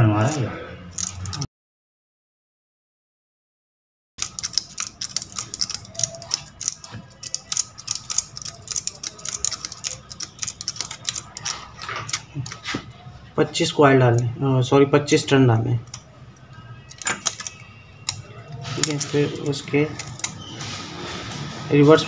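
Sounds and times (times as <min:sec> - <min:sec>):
wire ticking and rustling over paper: 0:04.2 - 0:12.6.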